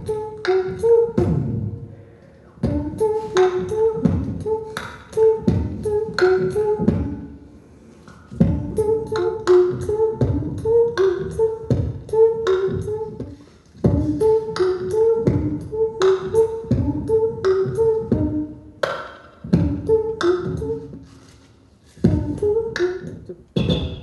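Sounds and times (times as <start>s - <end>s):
person beatboxing: 0.0s - 24.0s.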